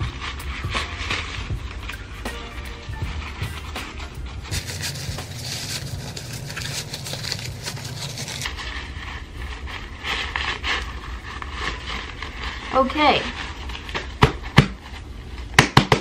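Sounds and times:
nylon bag crinkly rustling: 0:00.0 - 0:15.5.

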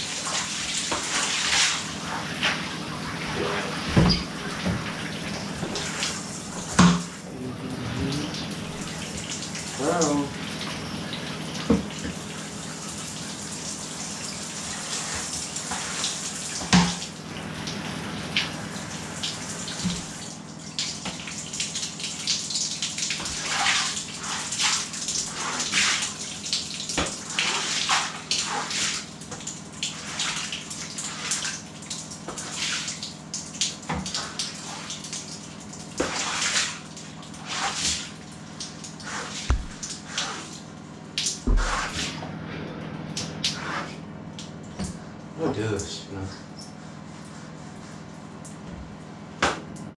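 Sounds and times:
water splashing on shower floor: 0:00.0 - 0:07.2, 0:07.8 - 0:42.2, 0:43.1 - 0:46.0
sharp thump: 0:39.5 - 0:39.8.

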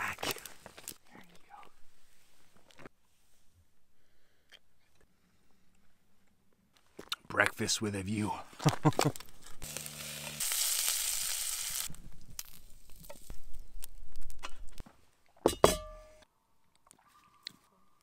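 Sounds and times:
sausages sizzling in a frying pan: 0:09.6 - 0:13.6
sharp metallic clank: 0:15.5 - 0:16.2.

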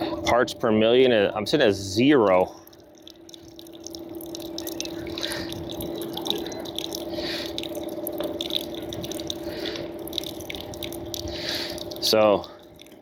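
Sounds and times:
pump humming: 0:00.0 - 0:13.0
water trickling and splashing: 0:01.6 - 0:13.0.

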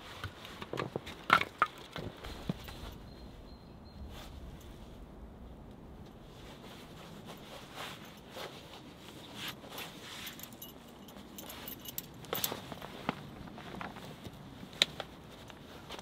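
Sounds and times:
gloves and jacket rustling: 0:02.1 - 0:16.0
leather belt being pulled: 0:06.6 - 0:16.0
small metallic clinks: 0:09.8 - 0:12.8.

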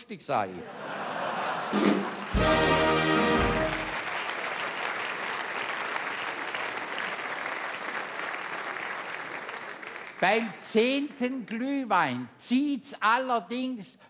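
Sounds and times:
audience applauding: 0:01.3 - 0:10.6.

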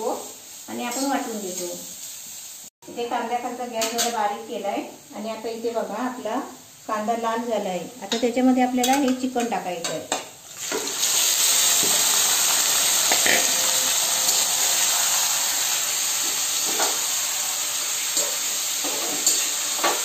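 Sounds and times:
chicken sizzling in hot oil: 0:00.0 - 0:02.8, 0:10.2 - 0:20.0
spoon scraping pan: 0:11.8 - 0:20.0.

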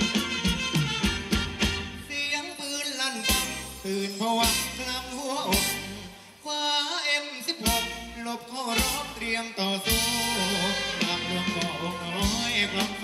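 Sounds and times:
drum beat: 0:00.0 - 0:02.0, 0:11.0 - 0:13.0
bass: 0:00.0 - 0:06.4, 0:07.6 - 0:13.0
person singing: 0:02.0 - 0:13.0.

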